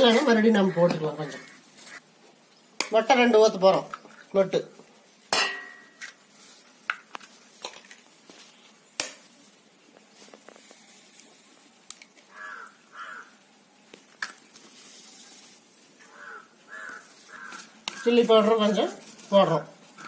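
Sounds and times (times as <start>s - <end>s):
crow cawing: 0.5s - 2.0s, 12.3s - 13.4s, 16.0s - 18.3s.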